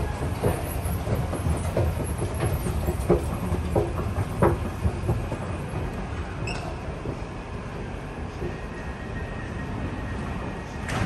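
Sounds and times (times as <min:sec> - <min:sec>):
footsteps knocking: 0:00.0 - 0:07.4
low station rumble: 0:00.0 - 0:11.0.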